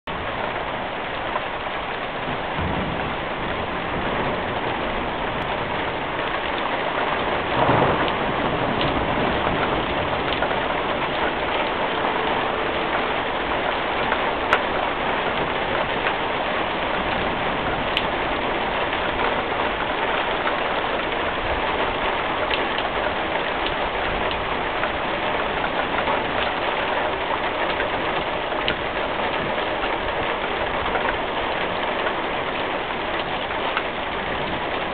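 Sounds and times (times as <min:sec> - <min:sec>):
rain drop hits: 0:00.1 - 0:34.9
steady rain: 0:00.1 - 0:34.9.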